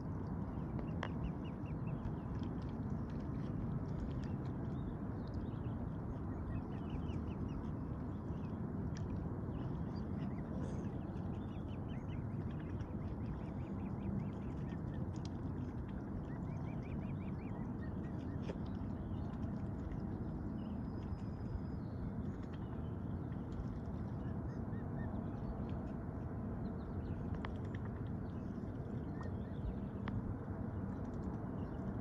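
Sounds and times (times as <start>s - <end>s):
low background rumble: 0.0s - 32.0s.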